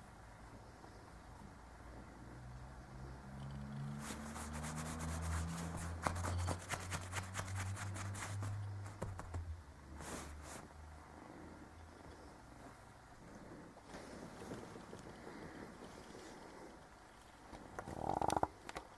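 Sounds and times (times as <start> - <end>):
kitten scratching on fabric: 3.7 - 10.8.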